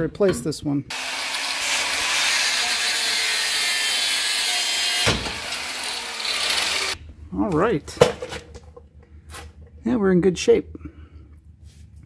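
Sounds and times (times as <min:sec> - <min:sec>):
angle grinder cutting steel: 0:00.9 - 0:07.0.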